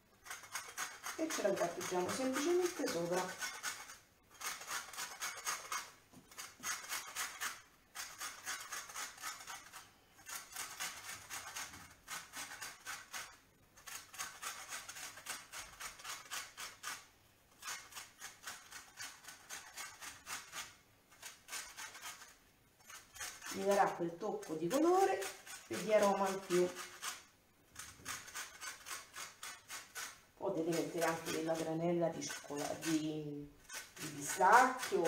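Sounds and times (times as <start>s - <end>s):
orange rasping on a metal grater: 0.2s - 35.0s.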